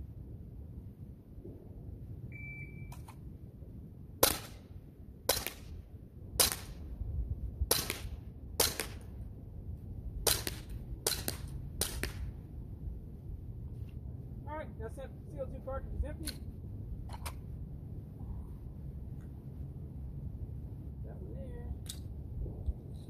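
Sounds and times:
short electronic beep: 2.3s - 3.0s
air pistol shots: 4.2s - 4.6s, 5.3s - 5.7s, 6.4s - 6.8s, 7.7s - 9.1s, 10.2s - 12.3s
wind on microphone: 5.2s - 14.3s, 15.3s - 23.0s.

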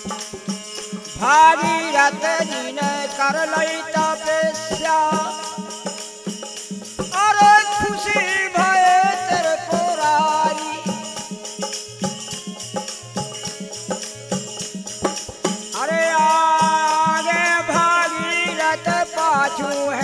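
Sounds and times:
jingling hand percussion: 0.0s - 20.0s.

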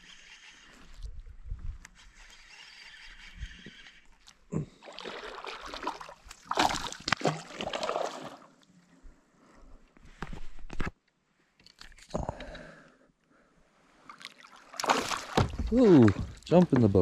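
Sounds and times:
fish splashing in water: 4.8s - 8.4s, 14.2s - 16.3s.

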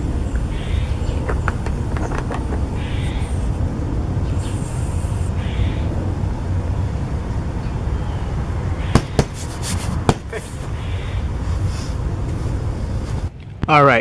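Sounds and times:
electric air pump humming: 0.0s - 7.0s.

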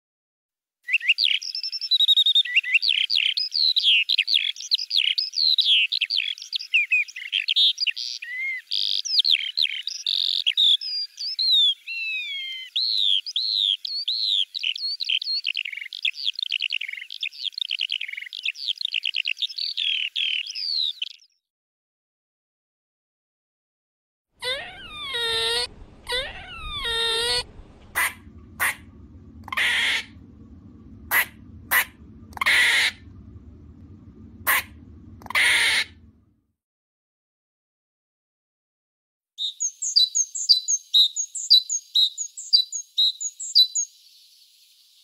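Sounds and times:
bird singing: 0.9s - 21.4s.

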